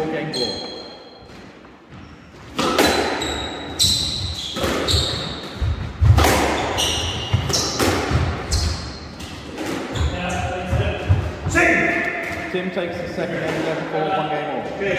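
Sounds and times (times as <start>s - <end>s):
shoe squeaks on wooden floor: 0.2s - 5.8s, 6.5s - 7.8s, 8.4s - 10.5s
squash ball hits: 2.5s - 3.2s, 4.0s - 12.5s.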